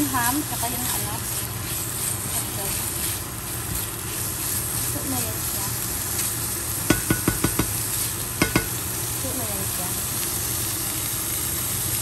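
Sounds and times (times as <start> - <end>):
meat sizzling in a frying pan: 0.0 - 12.0
spatula tapping a pan: 6.8 - 8.8.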